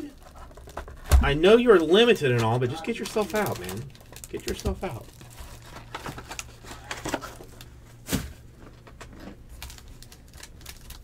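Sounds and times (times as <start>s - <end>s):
foil pack rustling: 0.0s - 11.0s.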